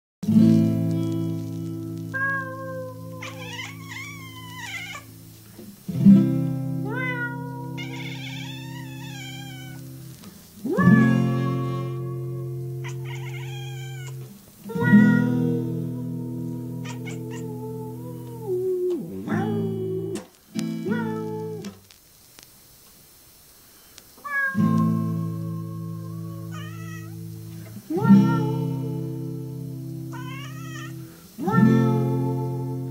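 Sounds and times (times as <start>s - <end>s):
cat meowing: 2.0s - 5.4s, 6.8s - 20.2s, 20.8s - 21.7s, 24.2s - 27.2s, 30.1s - 31.8s
acoustic guitar chords strummed: 10.7s - 12.8s.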